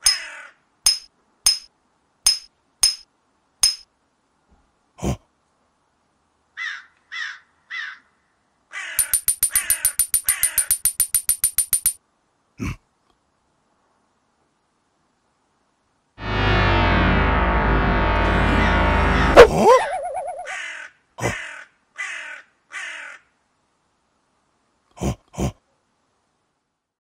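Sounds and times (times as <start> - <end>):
stones clicking together: 9.0 - 12.0
short calls: 19.4 - 20.7.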